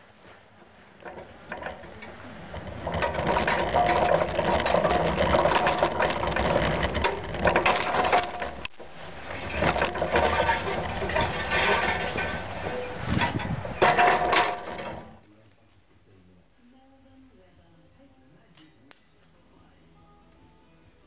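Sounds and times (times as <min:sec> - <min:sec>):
metal rig rattling and clattering: 0:00.6 - 0:15.2.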